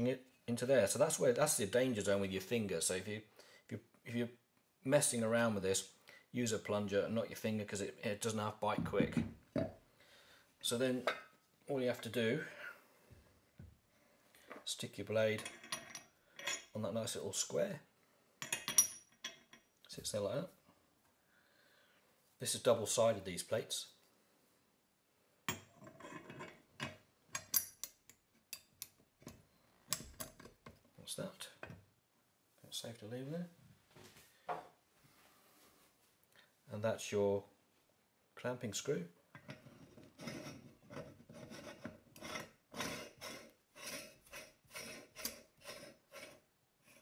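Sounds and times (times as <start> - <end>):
metal scrape: 39.4 - 47.0.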